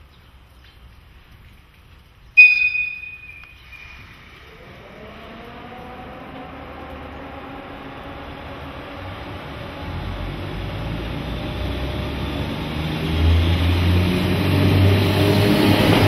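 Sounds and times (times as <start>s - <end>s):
locomotive whistle blast: 2.4s - 4.3s
traction motor whine: 3.7s - 16.0s.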